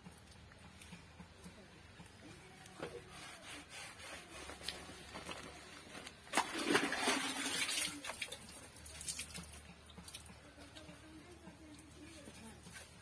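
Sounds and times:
cloth splashing in bucket: 5.2 - 10.3.

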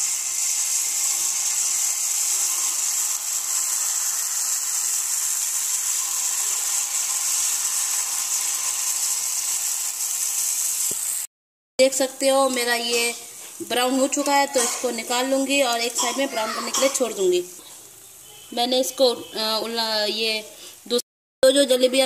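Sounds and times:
batter sizzling in hot oil: 0.0 - 17.5.

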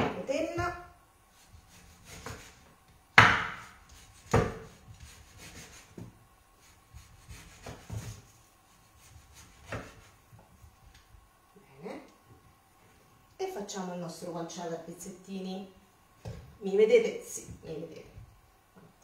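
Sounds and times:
knife scraping: 1.3 - 2.6.

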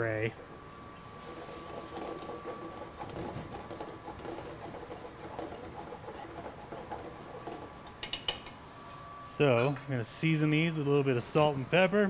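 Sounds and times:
sauce simmering and bubbling: 1.0 - 8.0.

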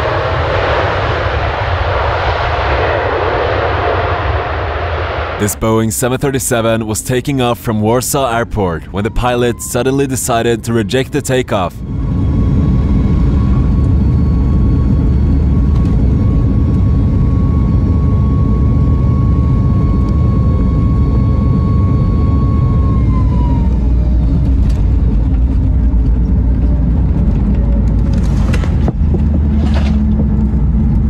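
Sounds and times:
jet engine rumble: 0.0 - 31.0
jet engine whine: 0.0 - 31.0.

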